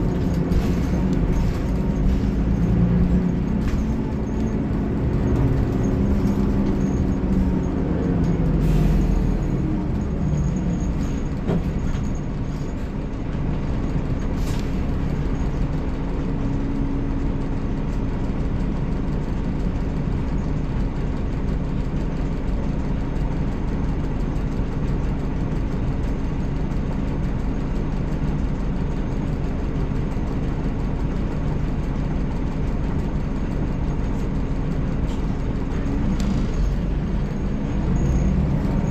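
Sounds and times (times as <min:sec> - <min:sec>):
diesel bus engine droning: 0:00.0 - 0:38.9.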